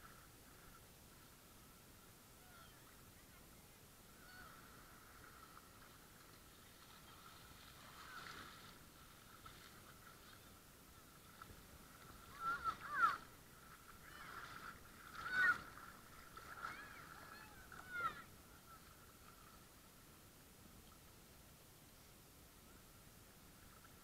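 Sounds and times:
children shrieking: 0:15.2 - 0:15.7, 0:16.6 - 0:18.3.

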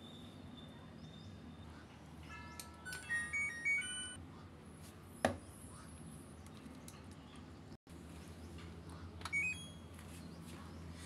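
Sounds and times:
electronic beeping tune: 0:03.0 - 0:04.2.

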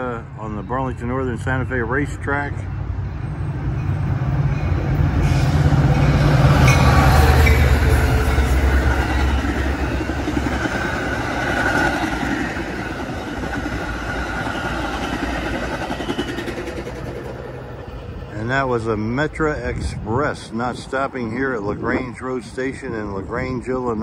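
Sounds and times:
diesel locomotive engine drone: 0:00.0 - 0:24.0
train wheels clattering on rails: 0:03.7 - 0:18.3.

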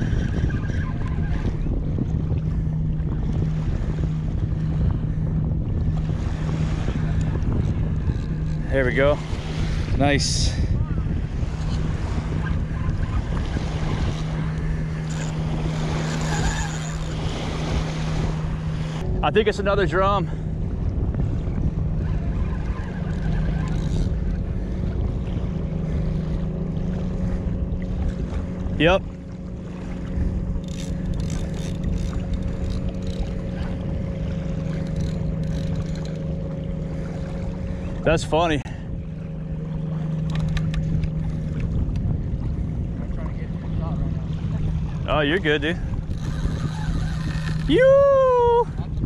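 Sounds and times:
steady low hum: 0:00.0 - 0:49.0
wind buffeting microphone: 0:00.0 - 0:49.0.

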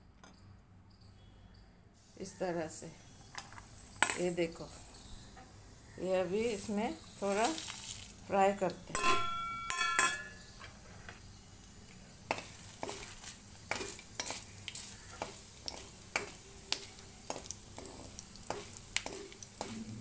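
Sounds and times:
faint oil sizzle: 0:02.0 - 0:09.3, 0:10.4 - 0:20.0
spoon ringing on metal pan: 0:08.9 - 0:10.5
steel spoon scraping pan: 0:08.9 - 0:11.1.

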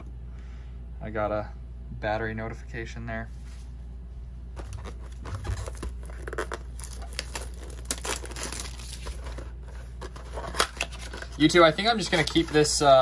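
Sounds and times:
packaging crinkling and tearing: 0:04.6 - 0:13.0.

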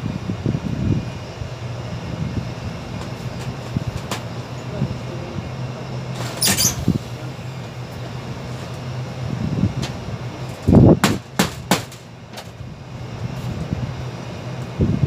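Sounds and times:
low machinery hum: 0:00.0 - 0:15.0
knocks on sheet-metal duct: 0:11.0 - 0:12.0.

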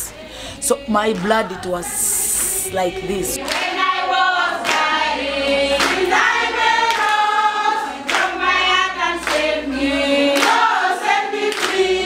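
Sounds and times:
women singing together: 0:00.0 - 0:12.0
sharp hand claps: 0:03.4 - 0:03.8, 0:04.6 - 0:05.0, 0:05.8 - 0:06.1, 0:06.8 - 0:07.3, 0:08.1 - 0:08.4, 0:09.2 - 0:09.5, 0:10.3 - 0:11.9.

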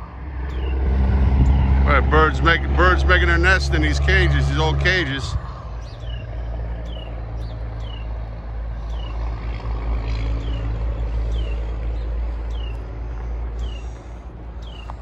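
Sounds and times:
engine rumble: 0:00.0 - 0:15.0
bird alarm chirps: 0:00.5 - 0:00.9, 0:05.8 - 0:09.3.

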